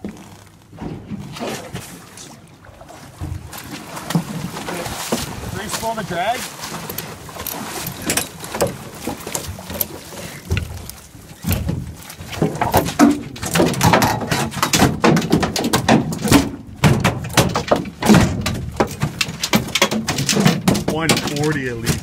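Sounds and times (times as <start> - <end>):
fish thrashing on boat deck: 0.0 - 22.0
thumps slaps and knocks: 12.4 - 22.0.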